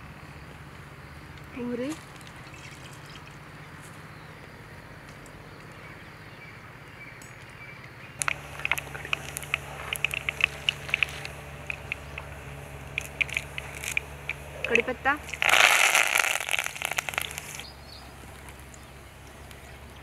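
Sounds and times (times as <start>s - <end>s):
seeds sizzling in hot oil: 8.2s - 17.7s.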